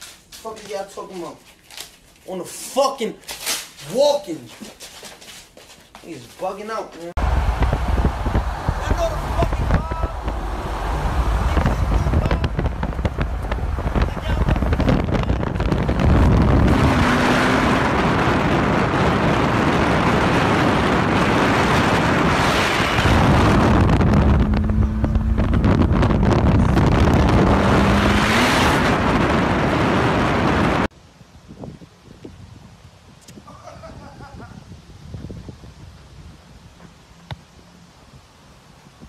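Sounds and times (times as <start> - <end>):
sports car engine running: 7.2 - 18.5, 23.0 - 30.8
wind rush on microphone: 7.2 - 37.4.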